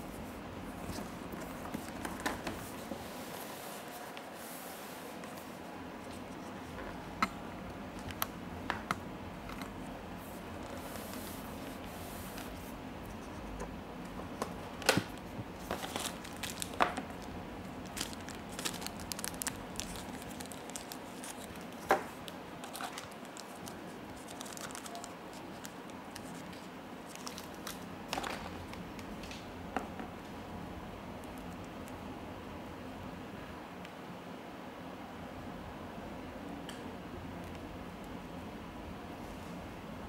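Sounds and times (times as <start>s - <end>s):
plastic packaging crinkling: 14.6s - 29.4s.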